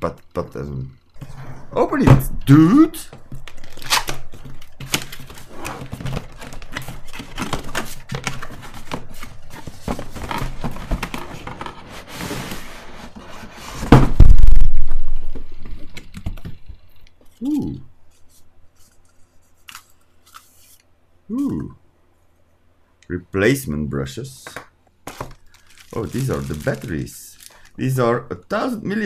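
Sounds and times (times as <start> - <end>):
cardboard box rustling and scraping: 4.9 - 14.0
loud heavy thump: 13.8 - 15.5.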